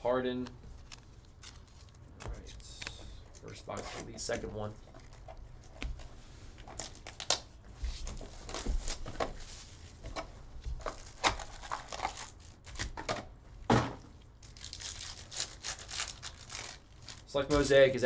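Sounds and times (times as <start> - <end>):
plastic wrap and foil crinkling: 0.6 - 9.8, 10.7 - 13.0, 14.4 - 18.0
foil pack ripping: 10.9 - 13.0, 14.4 - 17.8.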